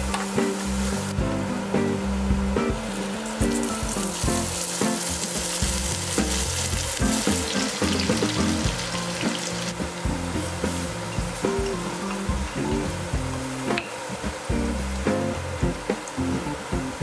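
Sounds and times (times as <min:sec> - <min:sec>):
vegetables sizzling in a frying pan: 0:00.0 - 0:01.2, 0:02.9 - 0:15.0
soft background music: 0:00.0 - 0:17.0.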